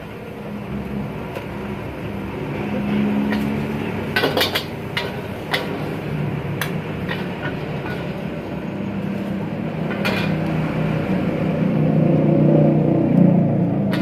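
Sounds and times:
gas burner rumbling: 0.0 - 14.0
spatula clanking against wok: 3.2 - 6.0, 6.6 - 8.5.

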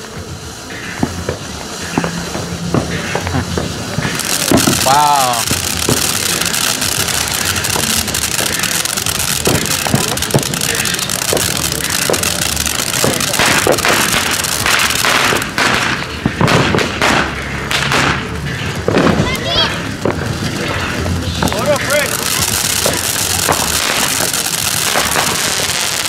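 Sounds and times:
crackling pops: 0.0 - 26.0
firework fountain hissing: 0.0 - 26.0.

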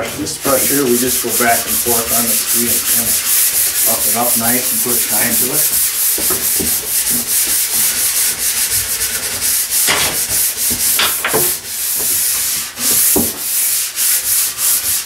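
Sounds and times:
brush scrubbing ski base: 0.0 - 15.0
sharp knocks: 9.8 - 11.6.

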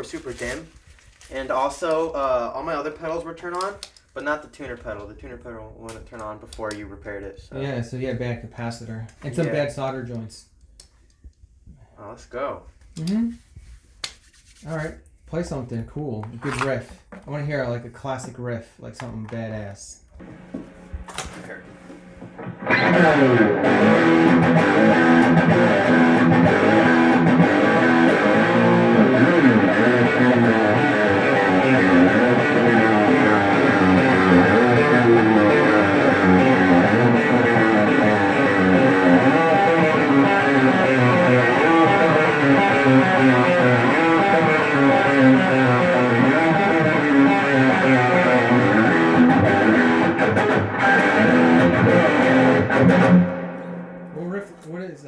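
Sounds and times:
electric guitar riff: 20.2 - 54.3.

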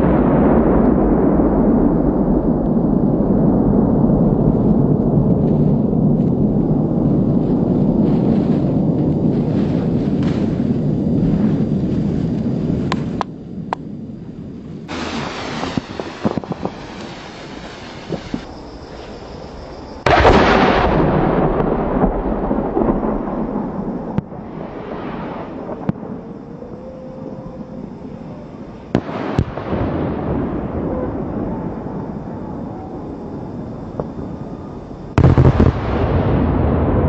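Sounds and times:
heavy firework boom: 0.0 - 19.3, 19.9 - 26.4, 28.9 - 31.9, 35.1 - 37.0
rolling rumble: 0.1 - 32.0
sharp firework cracks: 8.0 - 13.9, 14.9 - 18.5, 20.0 - 26.1, 28.9 - 30.3, 35.2 - 36.9
firework shells exploding: 14.8 - 18.8, 20.0 - 26.2, 28.9 - 30.6, 35.2 - 36.9.

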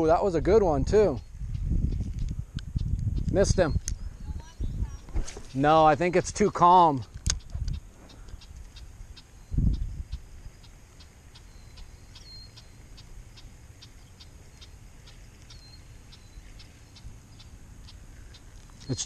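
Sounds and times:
faint bird chirps: 1.1 - 5.2, 7.4 - 19.0
dull thump: 5.1 - 5.6.

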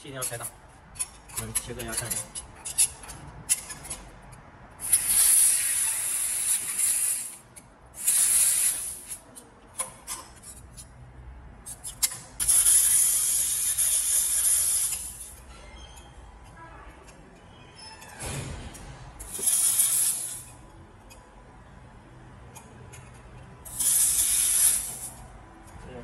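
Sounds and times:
hissing gas jet: 4.8 - 7.4, 8.0 - 9.2, 12.4 - 15.3, 19.2 - 20.5, 23.7 - 25.2.

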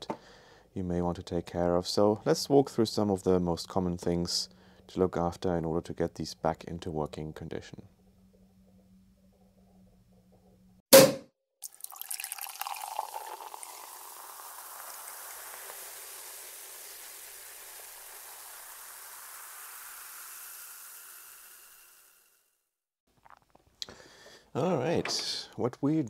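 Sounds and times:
champagne pouring and fizzing: 11.6 - 22.3.

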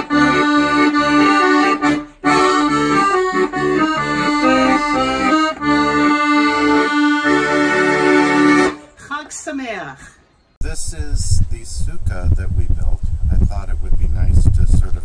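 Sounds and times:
piano accordion playing: 0.0 - 9.0.

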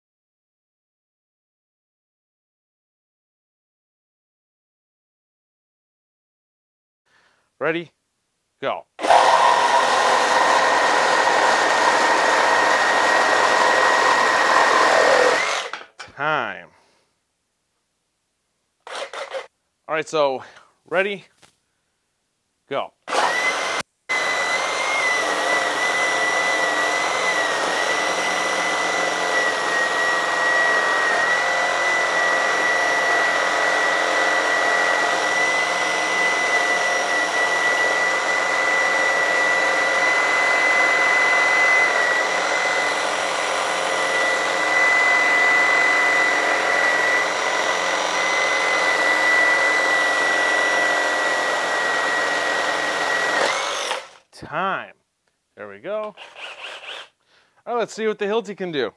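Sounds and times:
reciprocating saw motor whine: 9.0 - 15.7
saw blade rasping through wood: 9.0 - 15.8, 18.8 - 19.5, 23.1 - 54.2, 56.0 - 57.2.

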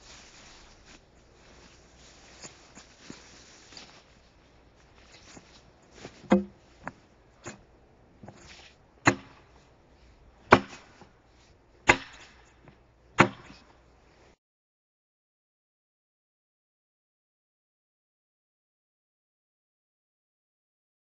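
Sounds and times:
axe chopping into log: 6.2 - 6.6, 9.0 - 9.5, 10.5 - 11.0, 11.9 - 12.4, 13.2 - 13.7.

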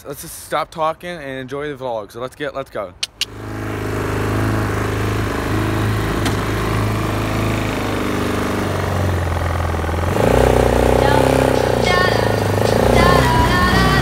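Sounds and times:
atv engine running: 3.1 - 14.0.

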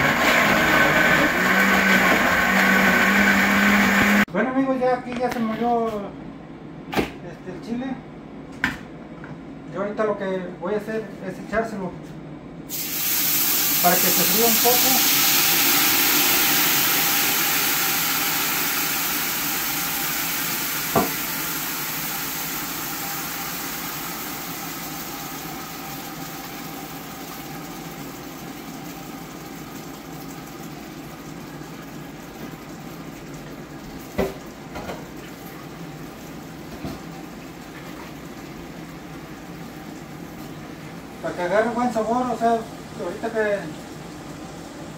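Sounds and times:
sauce sizzling in a pot: 12.7 - 29.1.

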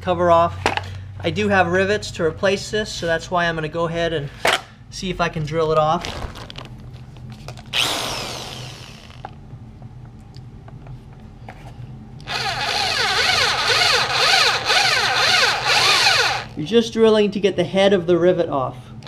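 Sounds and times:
power drill drilling rivet: 7.7 - 9.3, 12.2 - 16.6.

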